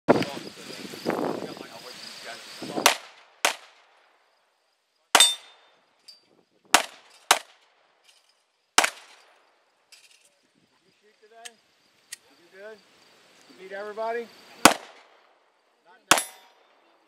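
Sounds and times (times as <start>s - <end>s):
pistol shots: 2.8s - 3.8s, 5.2s - 5.6s, 6.7s - 7.6s, 8.8s - 9.2s, 14.6s - 15.2s, 16.1s - 16.6s.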